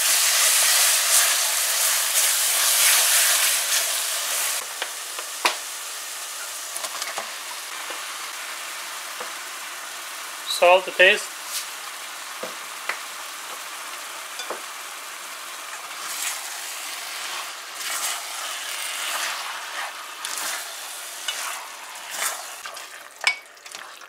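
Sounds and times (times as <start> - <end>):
meat sizzling in oil: 0.0 - 24.0
spatula scraping a metal pan: 17.1 - 22.6.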